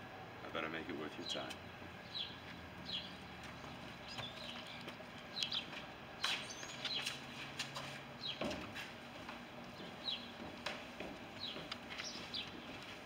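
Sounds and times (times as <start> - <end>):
outdoor background noise: 0.0 - 13.0
small bird chirping: 2.0 - 7.2, 11.4 - 12.7.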